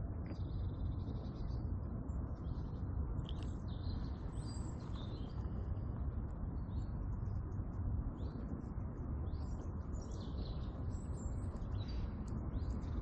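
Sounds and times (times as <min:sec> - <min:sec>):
low outdoor rumble: 0:00.0 - 0:13.0
small birds chirping: 0:00.0 - 0:13.0.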